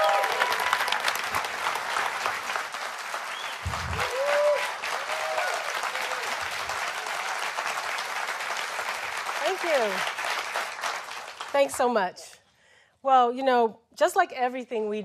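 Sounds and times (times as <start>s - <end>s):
large audience applauding: 0.0s - 11.9s.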